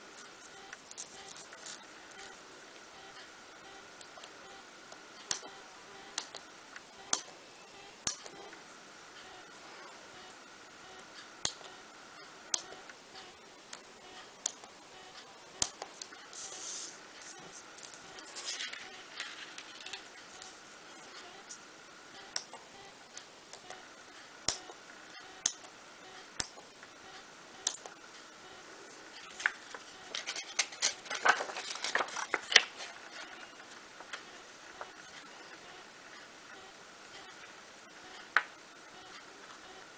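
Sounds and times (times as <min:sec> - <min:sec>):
paper rustling: 0:18.2 - 0:20.0, 0:29.3 - 0:33.4.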